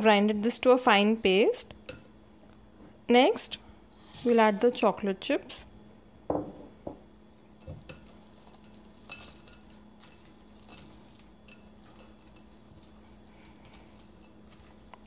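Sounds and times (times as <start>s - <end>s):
spatula scraping glass bowl: 4.0s - 4.8s.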